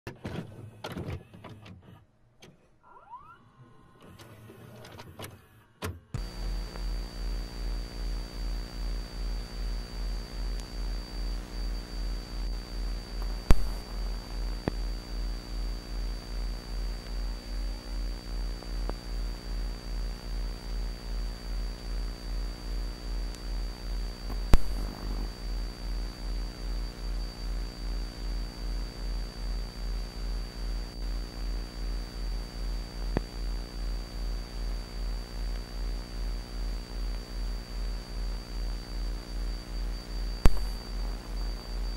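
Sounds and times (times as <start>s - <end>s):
faint high whine: 2.8s - 41.9s
pulsing electrical hum: 3.0s - 41.9s
sharp electrical pops: 6.2s - 15.1s, 23.3s - 25.9s, 40.3s - 41.9s.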